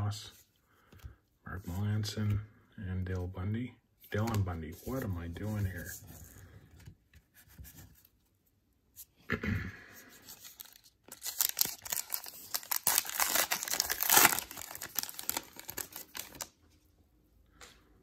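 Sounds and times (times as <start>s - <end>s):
wrapper tearing and crinkling: 10.4s - 16.5s.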